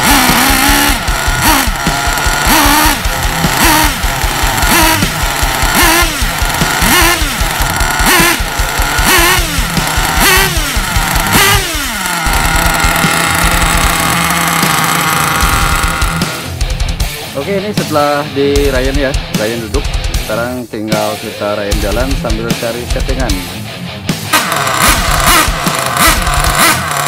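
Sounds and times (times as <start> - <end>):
small nitro engine revving: 0.0 - 16.7, 24.3 - 27.0.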